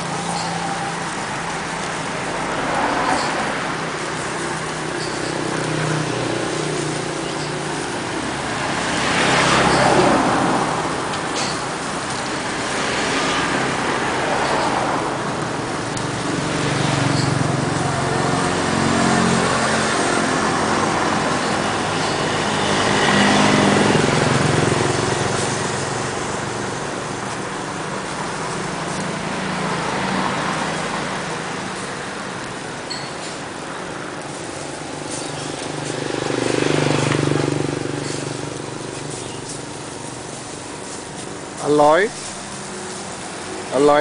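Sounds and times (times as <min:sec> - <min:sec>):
motor vehicles passing: 0:00.0 - 0:44.0
steady street noise: 0:00.0 - 0:44.0.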